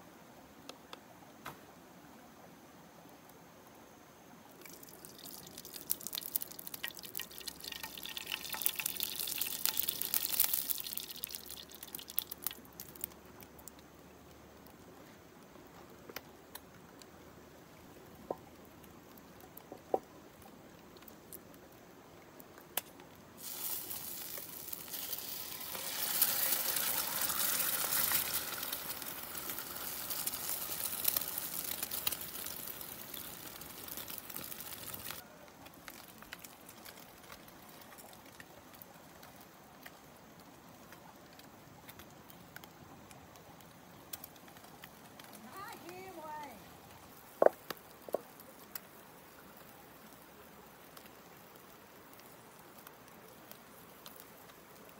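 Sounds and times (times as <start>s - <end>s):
low hiss: 0.0s - 54.9s
food sizzling in hot oil: 4.6s - 13.8s, 23.4s - 35.2s.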